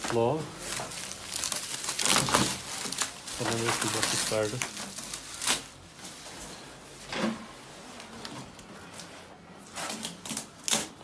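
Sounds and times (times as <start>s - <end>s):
packing knocking and rustling: 0.1s - 5.2s.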